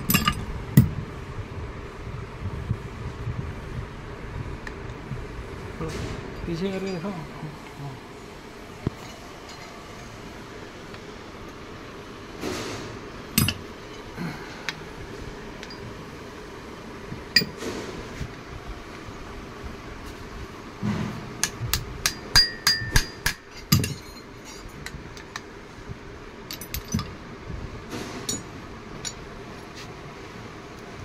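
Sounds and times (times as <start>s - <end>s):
hand tools clinking on metal: 22.0s - 24.8s.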